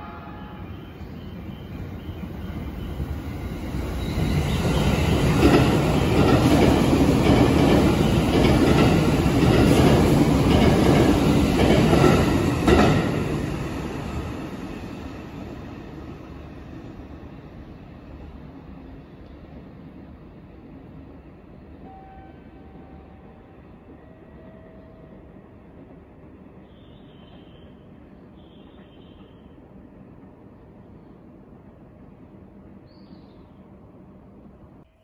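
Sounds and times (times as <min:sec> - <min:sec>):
train wheels rumbling on rails: 0:01.3 - 0:21.0.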